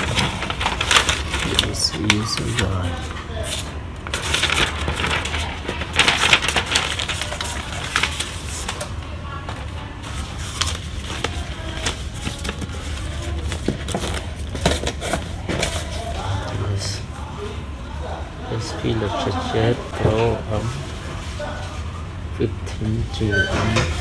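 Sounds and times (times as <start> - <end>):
paper rustling and crinkling: 0.0 - 17.1.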